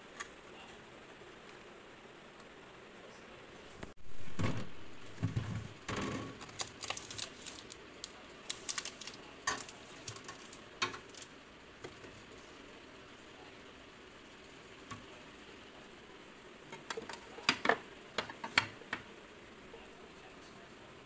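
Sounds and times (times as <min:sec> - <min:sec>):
food packages clicking and rustling: 0:05.9 - 0:11.3.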